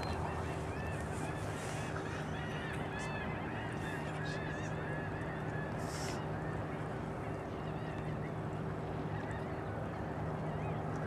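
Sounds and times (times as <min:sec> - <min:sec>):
flock of birds calling: 0:00.0 - 0:06.6.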